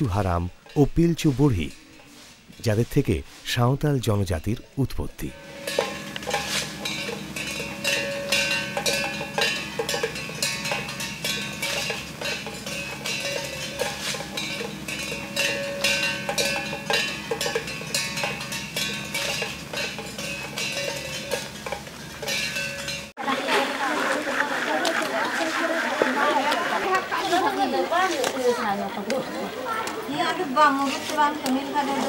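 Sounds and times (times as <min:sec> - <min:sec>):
ringing metal percussion music: 0:00.0 - 0:02.2, 0:04.1 - 0:23.2.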